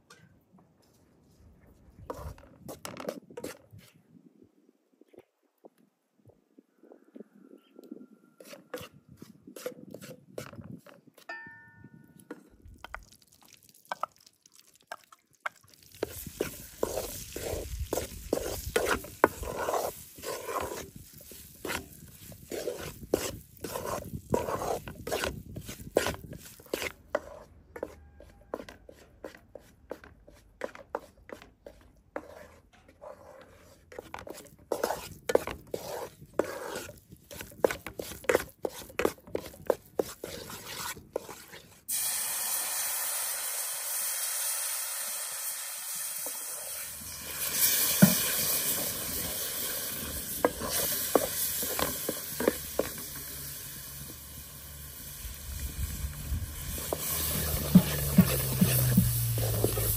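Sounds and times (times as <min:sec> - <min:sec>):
spatula scraping metal pan: 0:08.4 - 0:10.6, 0:16.0 - 0:41.7, 0:46.7 - 0:53.6, 0:56.5 - 0:59.9
sizzling syrup: 0:12.9 - 0:27.3, 0:41.9 - 0:59.9.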